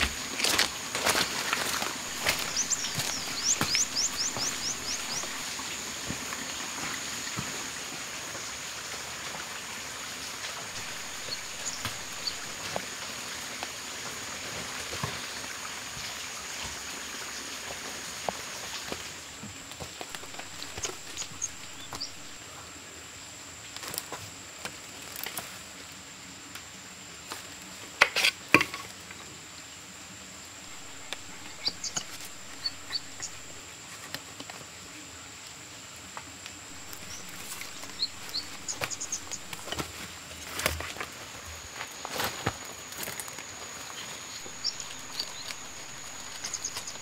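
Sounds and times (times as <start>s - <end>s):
footsteps crunching in leaves: 0.0s - 6.3s, 10.7s - 12.9s, 20.0s - 22.4s, 30.7s - 33.6s, 36.7s - 47.0s
high insect buzz: 0.0s - 7.4s, 10.7s - 13.0s, 20.0s - 22.4s, 30.6s - 33.7s, 36.6s - 47.0s
leaves and twigs crackling: 0.0s - 7.5s, 10.4s - 15.5s, 18.6s - 22.4s, 23.7s - 25.7s, 30.6s - 34.4s, 36.6s - 47.0s.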